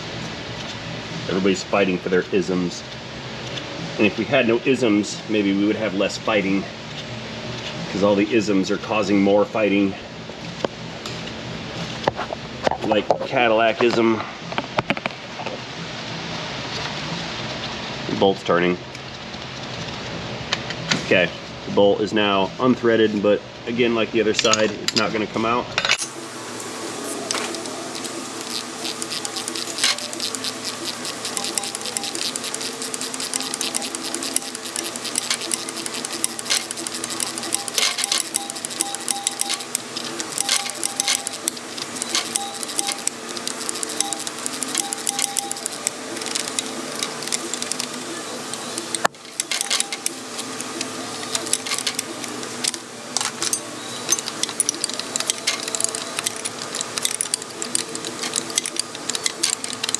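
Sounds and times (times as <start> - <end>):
steady hum: 0.0 - 59.9
hand ratchet clicking: 27.3 - 59.9.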